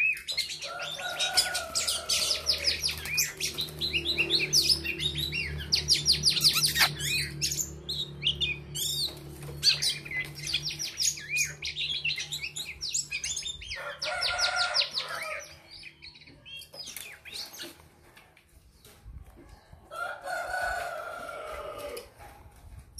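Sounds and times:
bird chirping: 0:00.0 - 0:18.1.

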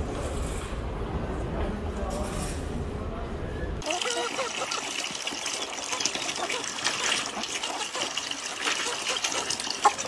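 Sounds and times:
water running: 0:03.8 - 0:10.0.

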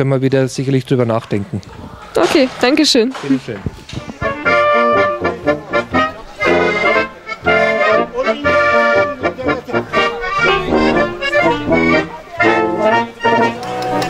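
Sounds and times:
folk band playing: 0:02.2 - 0:14.0
accordion: 0:04.1 - 0:14.0
tuba: 0:04.2 - 0:14.0.

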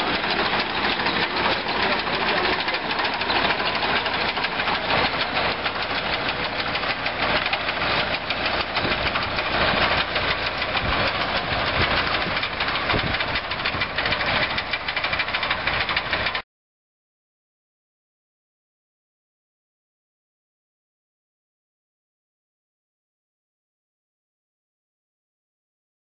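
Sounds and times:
potato digger chain rattling: 0:00.0 - 0:16.4
tractor engine running: 0:00.0 - 0:16.4.

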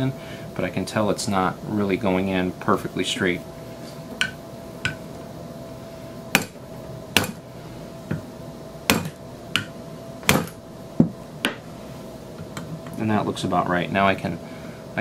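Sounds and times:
hammer tapping on metal: 0:04.2 - 0:05.0, 0:06.3 - 0:06.6, 0:08.9 - 0:09.7.

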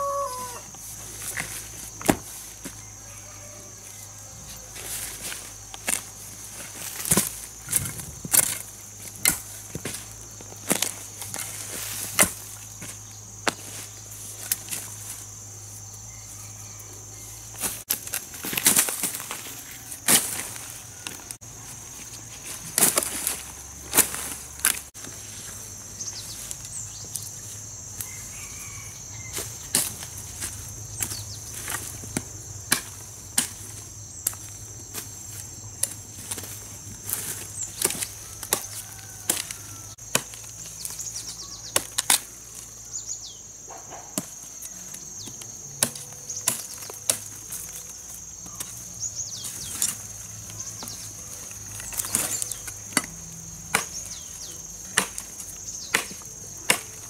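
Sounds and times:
high-pitched insect drone: 0:00.0 - 0:00.8.

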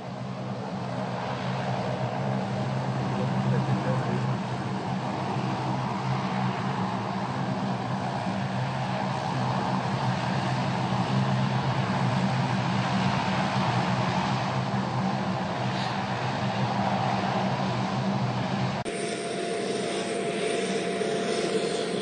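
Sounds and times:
turboprop plane engines droning: 0:00.0 - 0:22.0
faint steady tone: 0:18.8 - 0:22.0.

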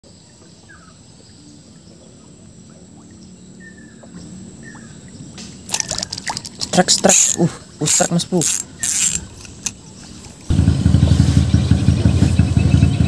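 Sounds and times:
fishing reel clicking: 0:05.7 - 0:10.5.

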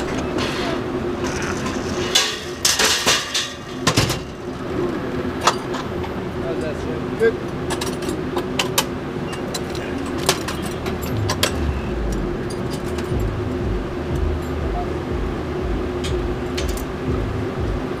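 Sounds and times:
metal buckles clicking: 0:07.7 - 0:13.2
steady hum: 0:08.9 - 0:18.0
wind rumble on microphone: 0:11.0 - 0:18.0.

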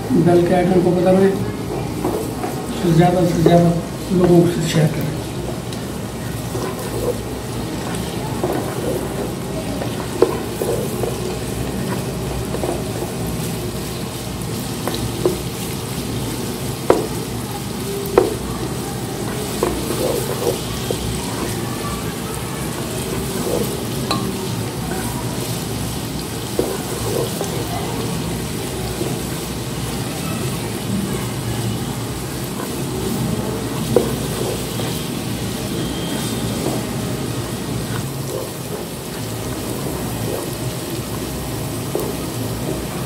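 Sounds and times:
onions sizzling in hot oil: 0:00.0 - 0:43.0
spatula stirring in pan: 0:00.4 - 0:43.0
spatula knocking against pan: 0:16.8 - 0:17.2, 0:18.2 - 0:18.4.

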